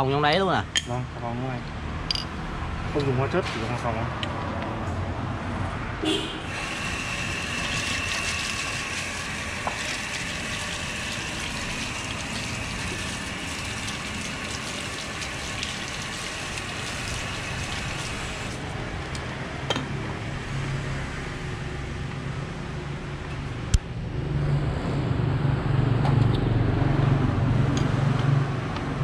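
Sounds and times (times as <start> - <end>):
water splashing from hose: 6.5 - 18.6.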